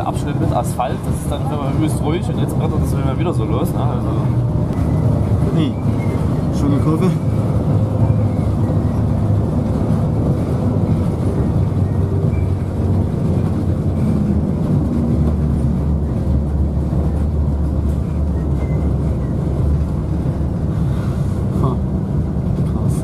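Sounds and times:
bus engine drone: 0.0s - 23.0s
low road rumble: 0.0s - 23.0s.

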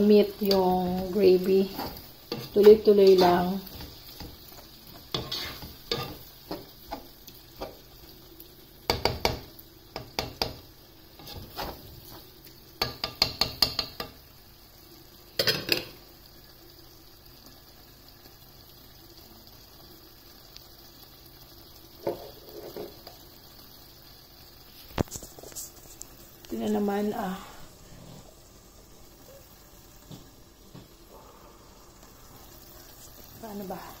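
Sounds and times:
mince simmering with faint sizzle: 0.0s - 34.0s
spatula scraping and knocking pot: 0.4s - 7.8s, 11.2s - 12.2s, 12.8s - 14.2s.

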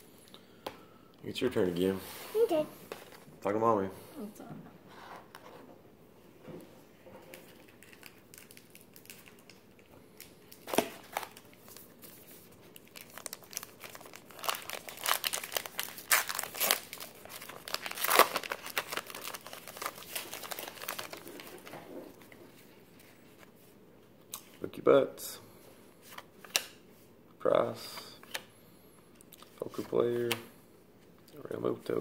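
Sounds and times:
card pack wrapper tearing: 12.8s - 21.6s.

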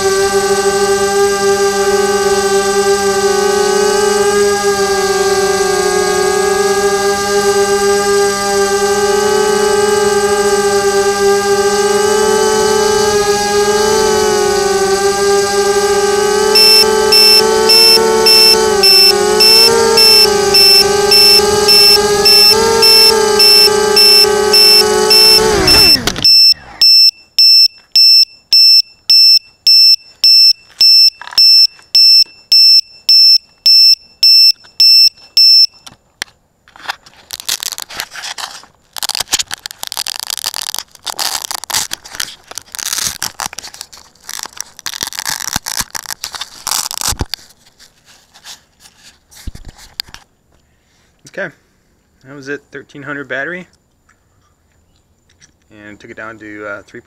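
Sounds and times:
quadcopter motors spinning: 0.0s - 28.1s, 36.8s - 47.4s
alarm buzzer beeping: 16.2s - 35.9s
rustling and scraping handling noise: 35.9s - 50.6s.

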